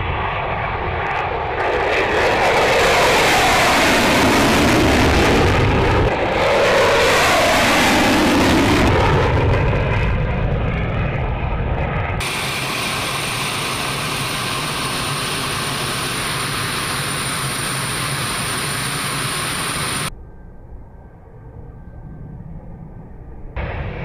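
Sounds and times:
jet fighter on afterburner: 0:00.0 - 0:20.1
steady jet engine sound: 0:12.2 - 0:20.4.

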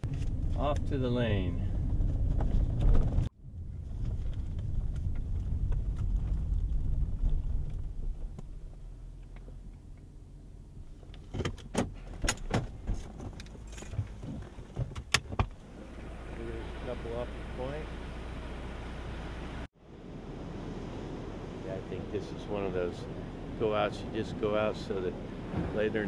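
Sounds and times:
car engine and road rumble: 0:00.0 - 0:26.0
clicks and knocks inside car: 0:11.0 - 0:15.6.

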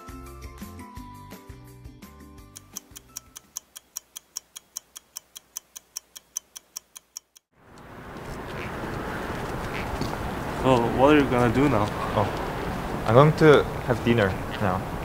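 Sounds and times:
background music: 0:00.0 - 0:03.6
clock ticking: 0:02.5 - 0:07.5
outdoor background hiss: 0:02.6 - 0:15.0.

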